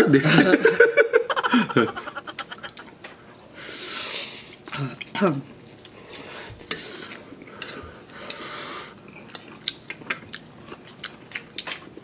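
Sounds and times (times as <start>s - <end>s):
chewing and utensil clicks: 9.1s - 12.0s.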